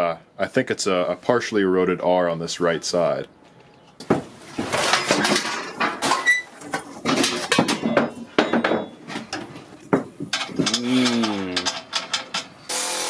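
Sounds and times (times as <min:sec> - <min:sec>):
metal objects clattering: 0:04.4 - 0:12.7.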